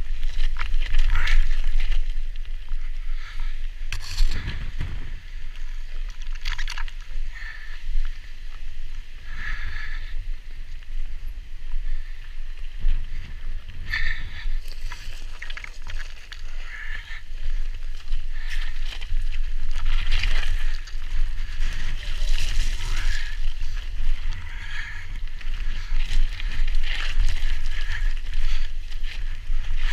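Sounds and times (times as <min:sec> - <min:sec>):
tyres crunching over stones: 0:00.0 - 0:03.3, 0:03.9 - 0:07.7, 0:12.9 - 0:29.9
wind rumble on microphone: 0:00.0 - 0:29.9
bike clattering over bumps: 0:04.0 - 0:05.4.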